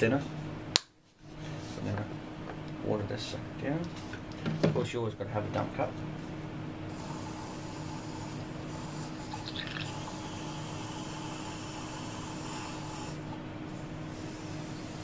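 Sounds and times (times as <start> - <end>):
airbrush spraying air hiss: 6.9 - 9.4, 10.0 - 15.0.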